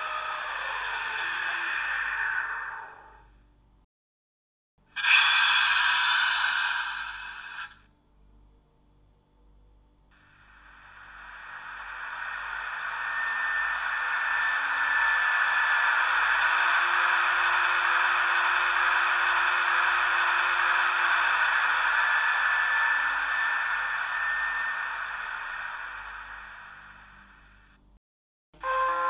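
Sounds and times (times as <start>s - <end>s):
faint fan whine: 7.1s - 28.0s
cooling fan rushing hiss: 9.5s - 27.8s.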